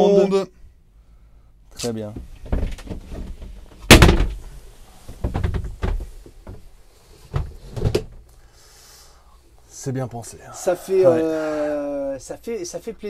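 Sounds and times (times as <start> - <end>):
wooden board clattering: 2.4 - 4.5, 5.1 - 6.6.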